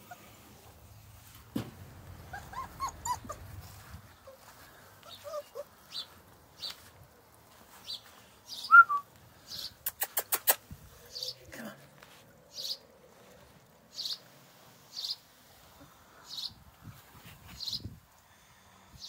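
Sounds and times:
puppies whimpering: 2.2 - 6.1.

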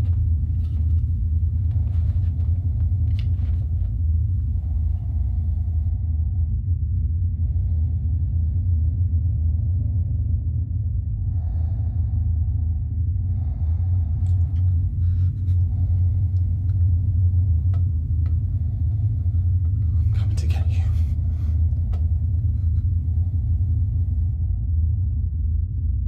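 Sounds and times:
faint clicks and scrapes: 0.0 - 5.9
low rumbling drone: 0.0 - 26.0.

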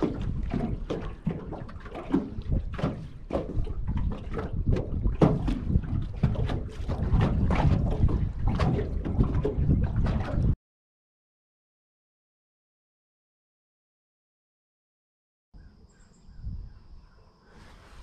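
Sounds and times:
waves slapping and splashing: 0.0 - 10.6
wind buffeting microphone: 0.0 - 10.6, 16.2 - 18.0.

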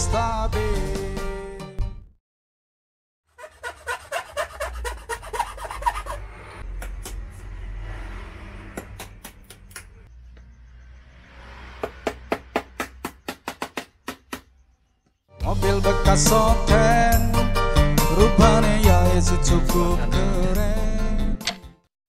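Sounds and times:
background music with low bass: 15.4 - 21.6.

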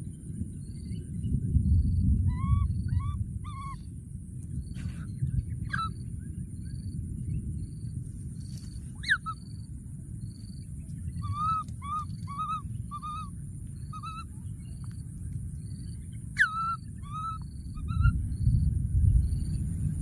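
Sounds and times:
baby monkey crying: 2.3 - 3.8, 9.0 - 9.4, 11.2 - 13.3, 13.9 - 14.2, 16.4 - 18.1.

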